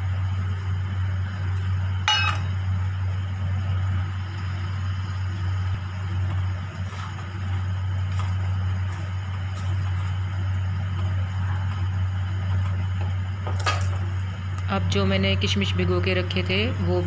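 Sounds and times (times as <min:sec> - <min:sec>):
low hum: 0:00.0 - 0:17.0
steel bowl clinking on pan: 0:02.1 - 0:02.5.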